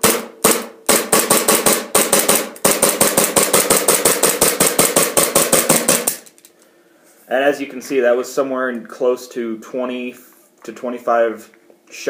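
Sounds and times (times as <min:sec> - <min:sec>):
airsoft pistol rapid shots: 0:00.0 - 0:06.3.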